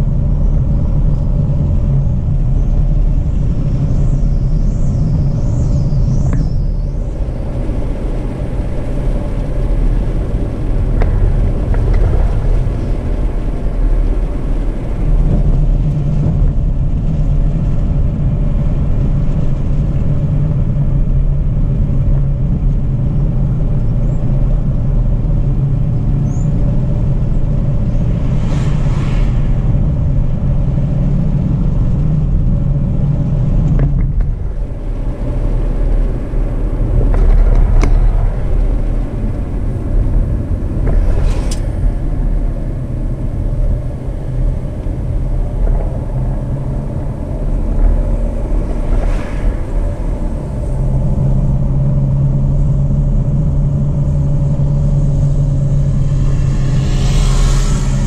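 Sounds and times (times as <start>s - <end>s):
car driving on a dirt road: 0.0s - 58.0s.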